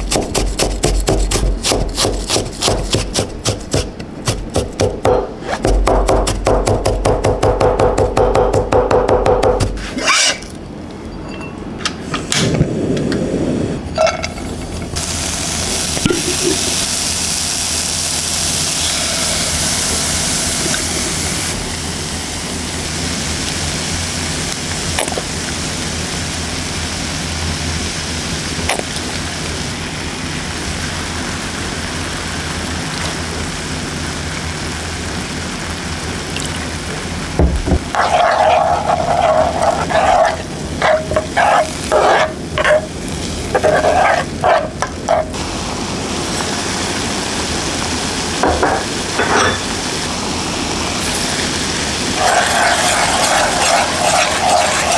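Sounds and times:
ginger sizzling in a frying pan: 14.4 - 54.9.

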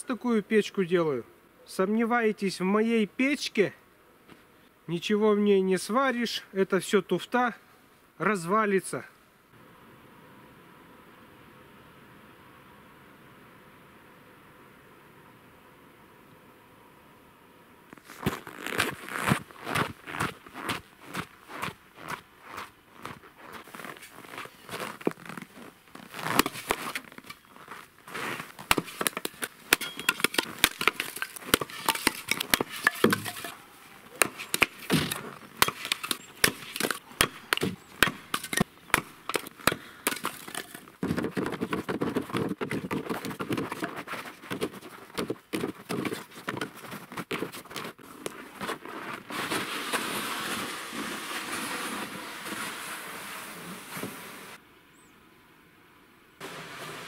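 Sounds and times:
sled dragged over snow: 17.9 - 37.0, 40.2 - 54.6, 56.4 - 57.0
firewood knocking and clattering: 28.6 - 33.6, 34.2 - 46.7.

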